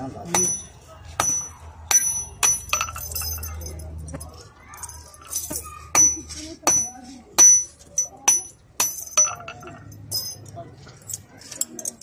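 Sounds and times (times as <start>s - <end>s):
hammer striking metal anvil: 0.3s - 3.5s, 5.3s - 10.4s.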